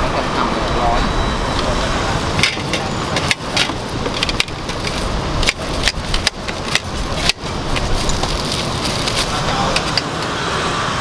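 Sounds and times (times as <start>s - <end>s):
street traffic hum: 0.0s - 11.0s.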